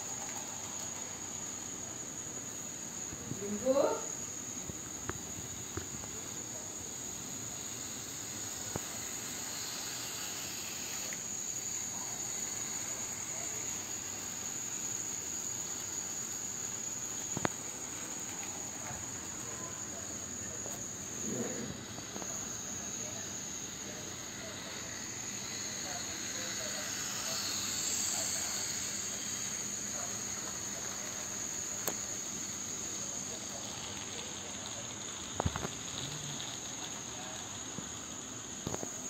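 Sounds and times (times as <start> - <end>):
model train rolling on track: 0.0 - 39.0
high-pitched whine: 5.1 - 33.3.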